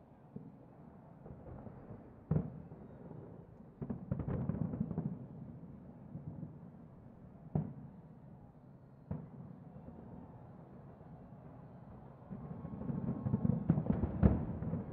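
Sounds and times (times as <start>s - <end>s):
distant fireworks booming: 1.2s - 6.7s, 7.5s - 8.0s, 9.1s - 10.1s, 11.3s - 14.9s
fireworks crackle: 12.3s - 14.9s.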